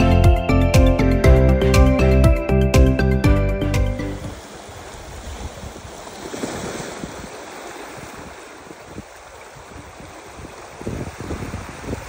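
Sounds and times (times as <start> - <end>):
wind gusting against microphone: 4.2 - 12.0.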